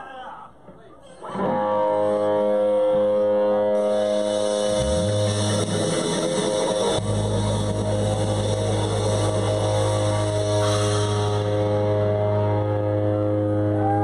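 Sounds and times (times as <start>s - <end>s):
guitar chords ringing: 1.4s - 14.0s
steady low bass note: 3.8s - 14.0s.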